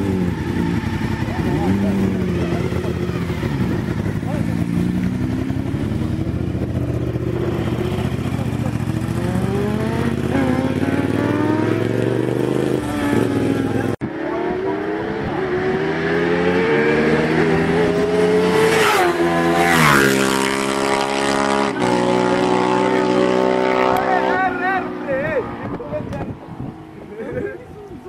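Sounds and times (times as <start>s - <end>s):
motorcycle engines revving: 0.0s - 28.0s.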